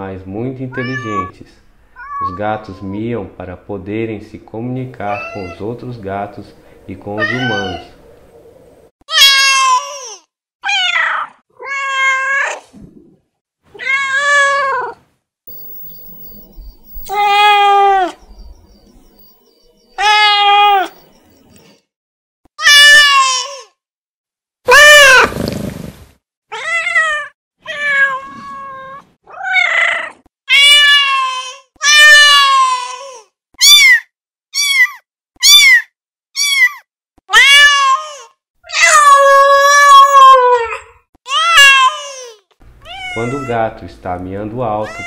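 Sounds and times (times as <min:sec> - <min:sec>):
cat meowing: 0:00.7 - 0:01.3, 0:02.0 - 0:02.8, 0:07.2 - 0:07.9, 0:10.6 - 0:12.6, 0:17.0 - 0:18.4, 0:20.0 - 0:20.9, 0:26.5 - 0:32.9, 0:42.8 - 0:43.6.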